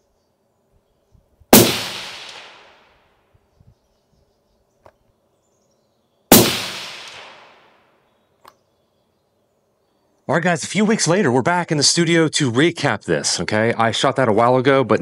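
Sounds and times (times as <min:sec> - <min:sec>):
suppressed rifle shots: 0:01.5 - 0:02.9, 0:06.3 - 0:07.8.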